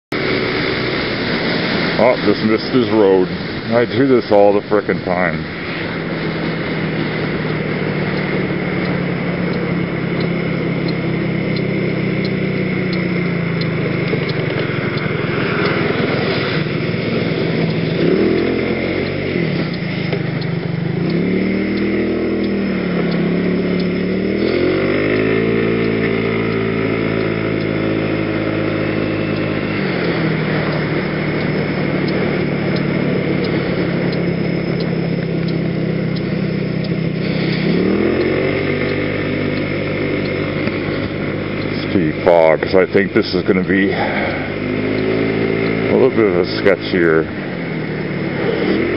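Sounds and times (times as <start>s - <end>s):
scooter engine running: 0.1s - 48.9s.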